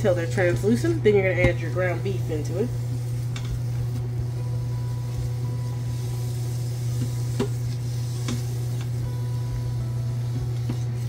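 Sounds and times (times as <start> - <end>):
steady low hum: 0.0 - 11.0
onions sizzling in oil: 2.6 - 11.0.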